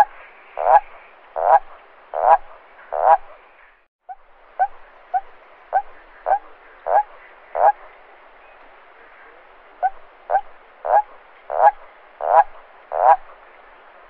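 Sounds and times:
toad calling: 0.0s - 3.4s, 4.1s - 7.9s, 9.8s - 13.4s.

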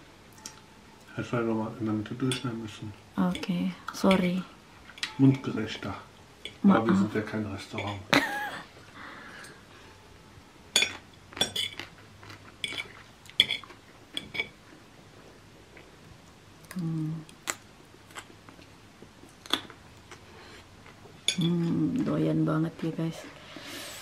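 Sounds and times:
chewing: 10.9s - 14.5s, 15.2s - 21.5s.

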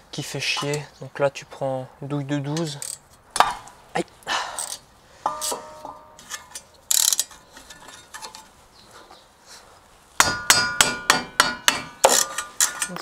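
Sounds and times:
ratchet clicking fast: 6.9s - 7.3s.

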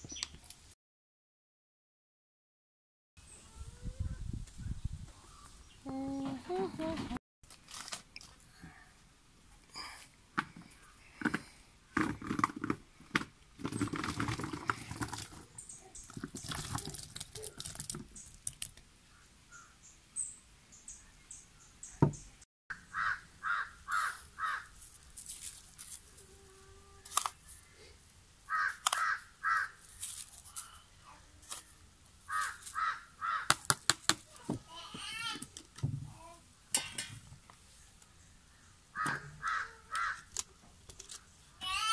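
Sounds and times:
crow cawing: 22.8s - 24.7s, 28.5s - 29.8s, 32.3s - 33.6s, 39.0s - 40.3s.

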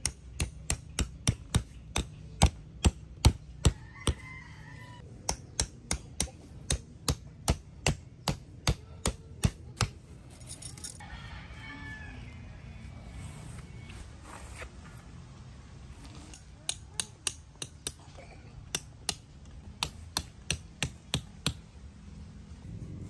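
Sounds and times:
hammer striking metal tent stakes: 0.0s - 4.2s, 5.1s - 10.0s, 16.4s - 18.0s, 18.6s - 21.6s.

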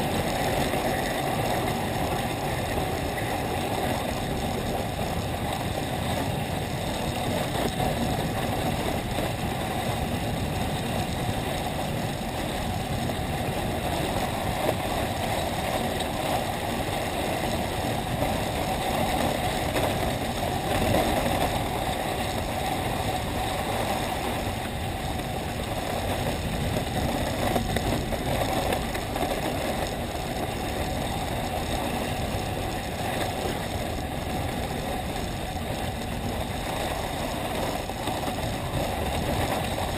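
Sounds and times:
skis sliding over packed snow: 0.0s - 39.9s.

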